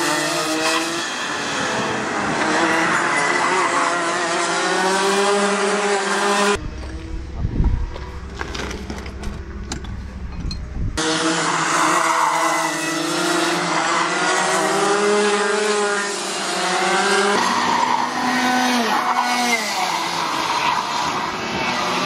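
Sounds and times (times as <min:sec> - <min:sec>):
kart engines revving: 0:00.0 - 0:22.0.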